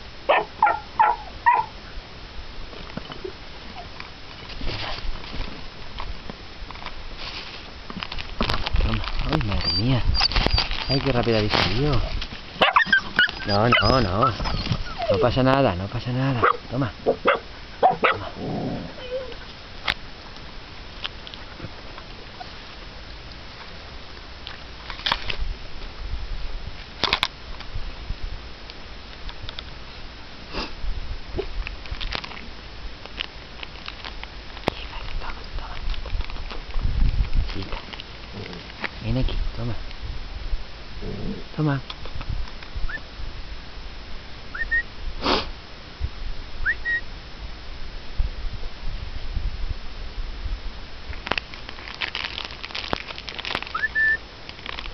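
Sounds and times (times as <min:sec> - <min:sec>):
wind rumble on microphone: 0:00.0 - 0:45.2, 0:45.9 - 0:54.9
brief hiss: 0:30.5 - 0:30.8, 0:44.7 - 0:45.6
whistled calls: 0:44.5 - 0:44.9, 0:46.6 - 0:47.1, 0:53.7 - 0:54.2.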